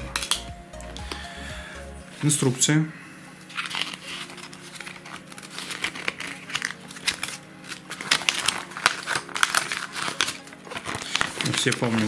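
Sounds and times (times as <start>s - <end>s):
paper crinkling and rustling: 3.4s - 12.0s.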